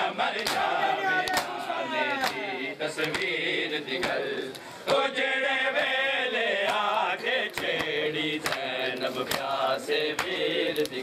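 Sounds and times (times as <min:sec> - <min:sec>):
men chanting a lament: 0:00.0 - 0:11.0
hands slapping bare chests: 0:00.3 - 0:02.4, 0:03.0 - 0:03.3, 0:04.0 - 0:05.0, 0:07.5 - 0:11.0.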